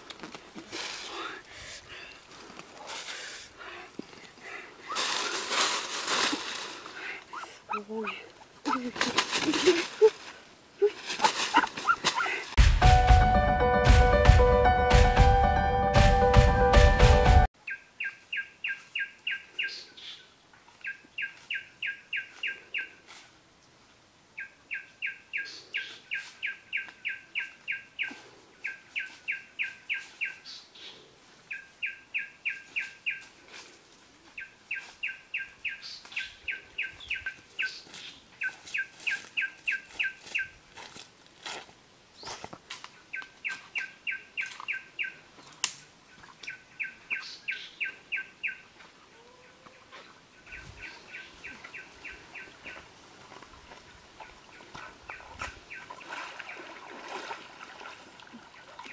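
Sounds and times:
rustle in leaf litter: 0.0s - 1.6s, 4.8s - 12.6s, 37.6s - 42.8s.

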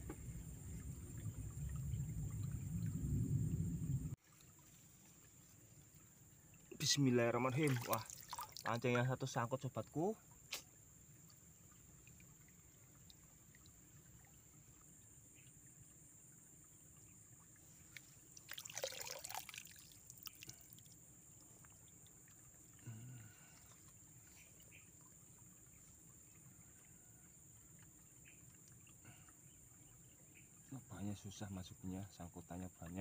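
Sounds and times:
water splash and trickle: 0.0s - 33.0s.

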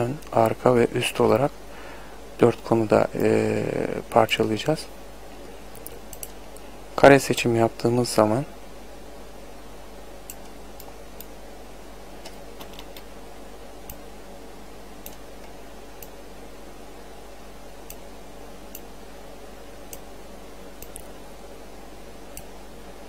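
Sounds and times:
low electrical hum: 0.0s - 23.0s
computer mouse clicking: 5.8s - 6.4s, 20.8s - 21.1s.

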